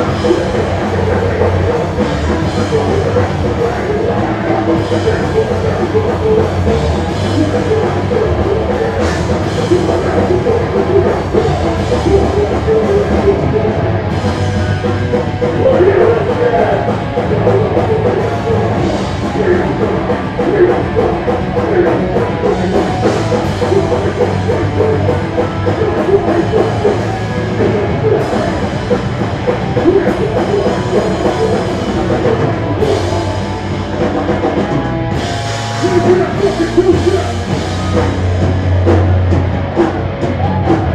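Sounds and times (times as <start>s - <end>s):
heavy rock band playing: 0.0s - 40.9s
vocalist shouting: 15.5s - 28.8s.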